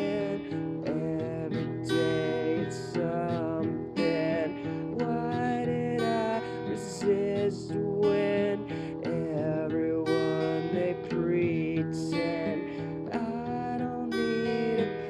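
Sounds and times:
acoustic guitar strummed: 0:00.0 - 0:15.0
person singing: 0:00.0 - 0:15.0.

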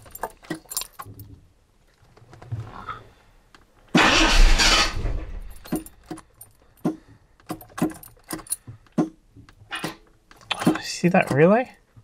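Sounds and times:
keys jangling: 0:00.0 - 0:01.3, 0:05.3 - 0:08.6
loud burst: 0:04.0 - 0:05.3.

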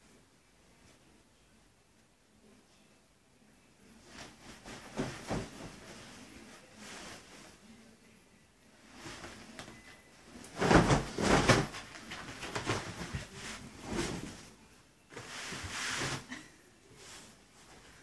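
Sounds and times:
bedsheet being shaken and flapped: 0:04.0 - 0:07.7, 0:08.8 - 0:18.0.

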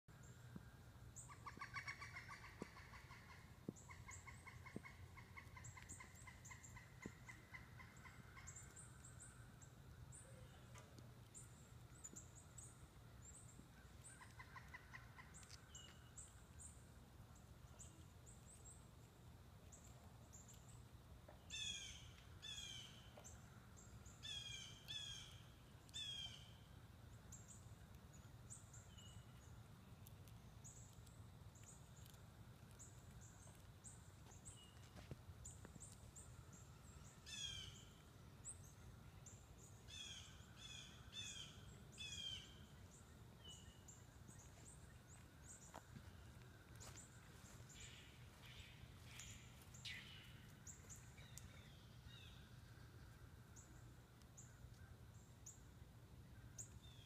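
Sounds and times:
wild birds chirping: 0:00.1 - 0:57.0
downward-slurred bird calls: 0:01.2 - 0:08.8.

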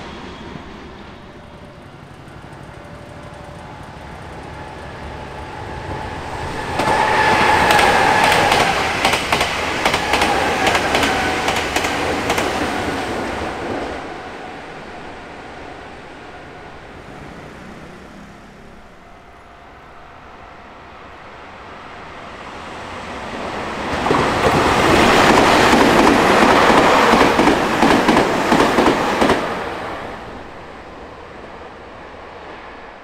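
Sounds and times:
electric train rumbling past: 0:00.0 - 0:33.0.

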